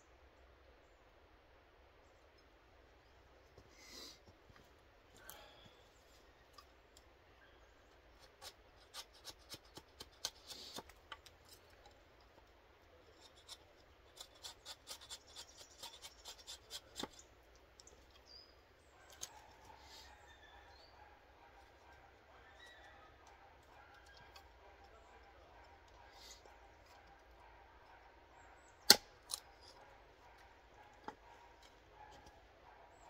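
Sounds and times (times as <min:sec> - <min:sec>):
knife shaving wood: 0:07.9 - 0:18.2, 0:22.6 - 0:27.4.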